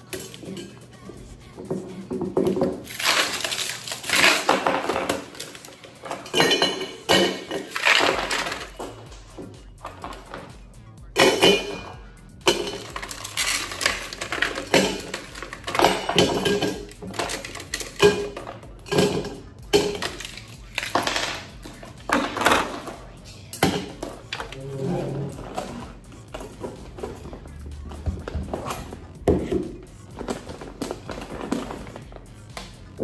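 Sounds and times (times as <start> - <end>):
background music: 0.0 - 33.0
ice cubes clinking into metal tumbler: 2.9 - 8.9.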